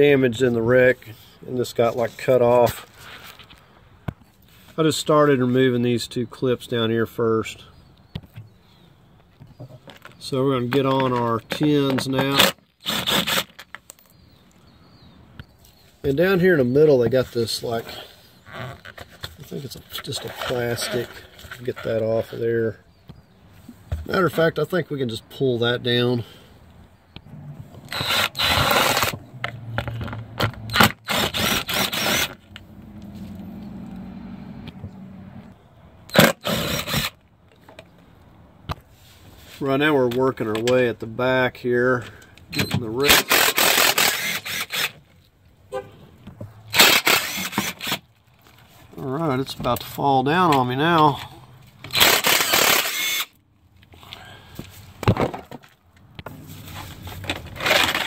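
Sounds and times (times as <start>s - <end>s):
power driver whining: 27.1s - 37.2s, 42.4s - 45.1s, 46.7s - 48.1s, 51.8s - 53.4s.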